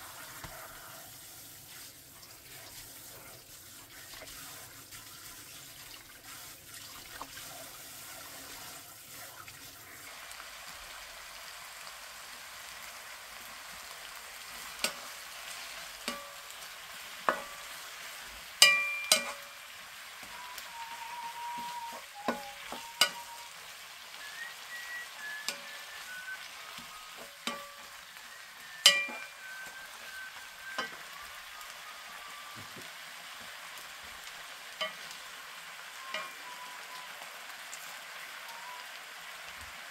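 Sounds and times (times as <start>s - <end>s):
tap water running in a sink: 0.0s - 16.4s, 20.2s - 35.1s
food sizzling in a pan: 0.0s - 39.9s
wooden spatula knocking on pan: 17.3s - 17.7s
person whistling a tune: 20.2s - 32.9s, 35.9s - 37.4s, 38.4s - 38.9s.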